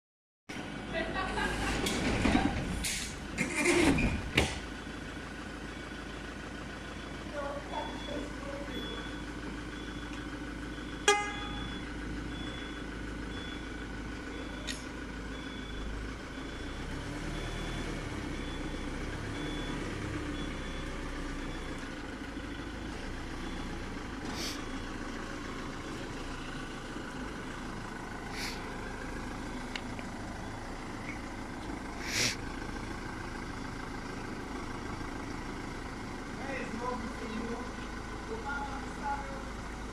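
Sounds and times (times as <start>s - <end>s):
van engine running: 0.5s - 39.9s
high reversing beep: 7.7s - 13.7s, 14.3s - 21.9s
brief hisses: 28.4s - 28.6s, 32.0s - 32.4s.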